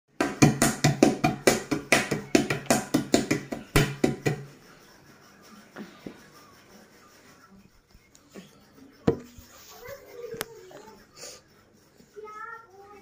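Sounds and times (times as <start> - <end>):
hands slapping glass table: 0.2 - 4.5.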